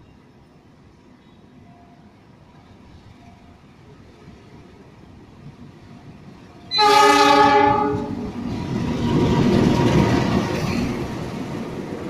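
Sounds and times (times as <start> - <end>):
locomotive rumbling past: 6.6 - 12.0
locomotive horn blast: 6.7 - 8.2.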